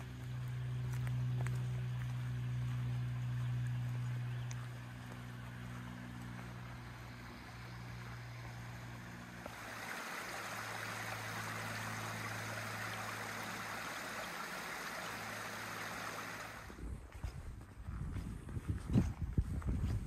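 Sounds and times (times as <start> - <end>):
brook running over rocks: 0.0 - 16.8
low steady hum: 0.0 - 20.0.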